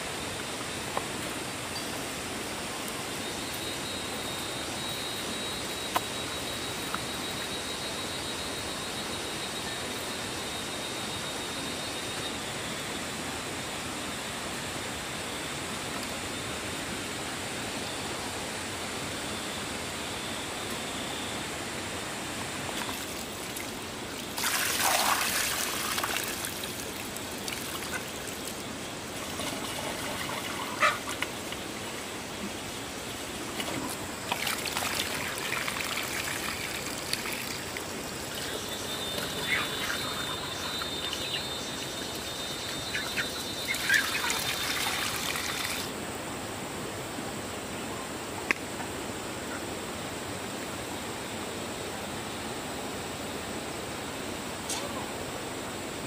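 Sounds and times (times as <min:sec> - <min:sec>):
water splashing and trickling: 0:22.8 - 0:32.1, 0:33.1 - 0:45.9.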